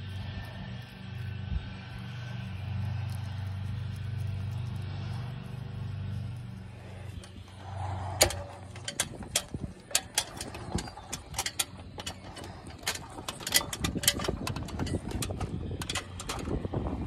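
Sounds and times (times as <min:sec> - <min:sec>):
low steady hum: 0:00.0 - 0:17.0
knocks and clanks on ladder rungs: 0:08.2 - 0:16.6.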